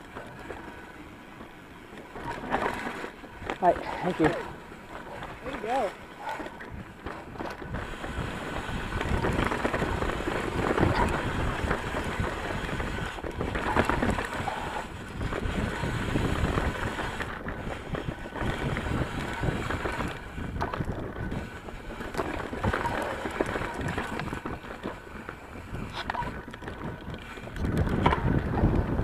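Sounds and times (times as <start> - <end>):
bike rattling: 0.0 - 29.0
tyres rolling on dirt: 0.0 - 29.0
wind buffeting microphone: 2.1 - 29.0.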